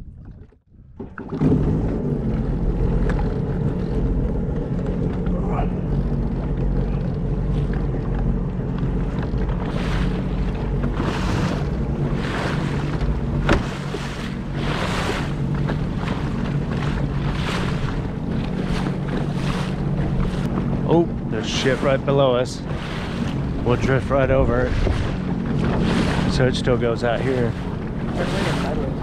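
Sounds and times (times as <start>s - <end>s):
wind on microphone: 0.0s - 22.0s, 22.6s - 29.0s
water splashing along hull: 0.0s - 29.0s
jet ski engine running: 0.5s - 29.0s.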